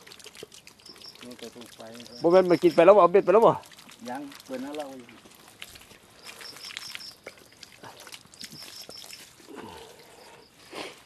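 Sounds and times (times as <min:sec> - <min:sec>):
water splashing in a basin: 0:00.0 - 0:11.0
crickets chirping: 0:00.8 - 0:03.6, 0:05.9 - 0:11.0.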